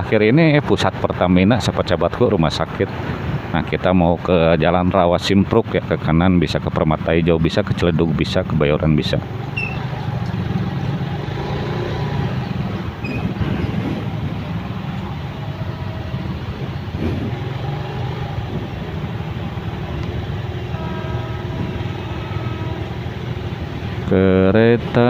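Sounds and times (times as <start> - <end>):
engines idling in traffic: 0.0 - 25.0
faint repeating tone: 9.5 - 10.0.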